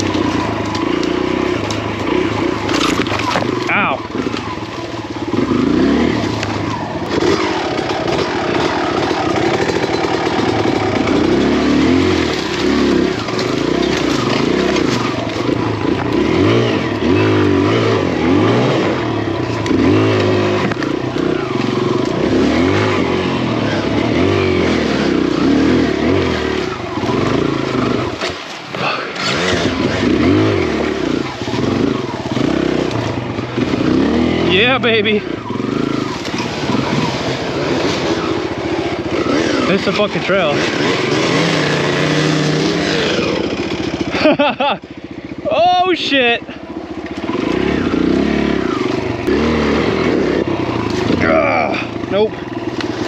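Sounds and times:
dirt bike engine revving: 0.0s - 53.0s.

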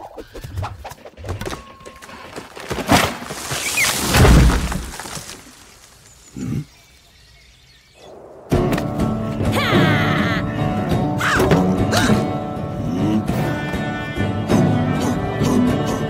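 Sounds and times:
rushing whoosh with deep rumble: 8.0s - 9.6s.

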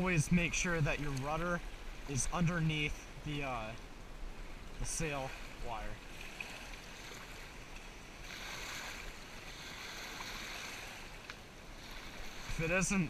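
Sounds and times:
waves lapping against hull and shore: 0.0s - 13.0s.

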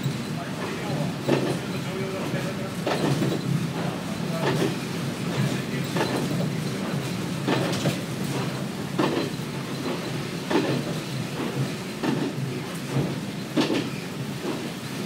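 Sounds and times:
wheels clacking over rail joints: 0.0s - 14.7s
train engine low drone: 0.0s - 15.0s.

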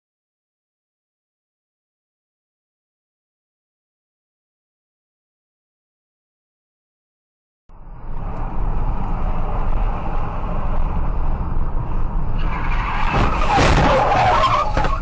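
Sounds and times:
car road and engine noise: 7.7s - 15.0s
tyres skidding on asphalt: 8.2s - 15.0s.

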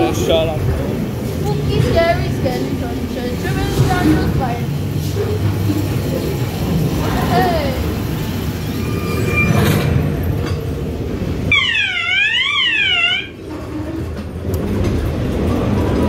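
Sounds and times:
ride car rumbling along track: 0.0s - 16.0s
siren-like electronic tone: 11.5s - 13.4s.

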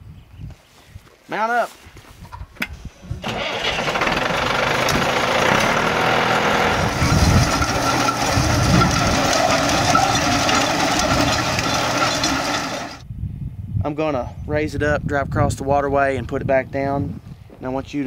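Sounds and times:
tractor engine starting and running: 3.2s - 13.0s.

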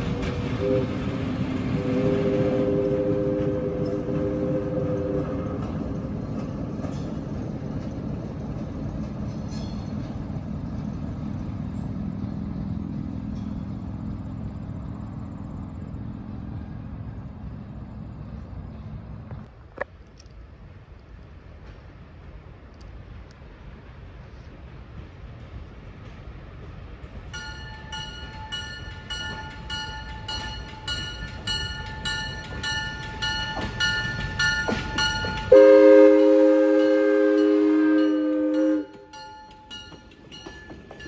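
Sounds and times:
train rumbling over rails: 0.0s - 41.0s
locomotive horn chord: 0.1s - 5.6s, 35.5s - 39.1s.

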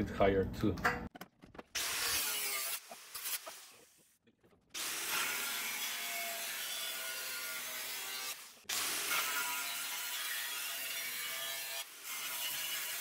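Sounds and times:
angle grinder cutting sheet metal: 1.8s - 3.8s, 4.8s - 13.0s.

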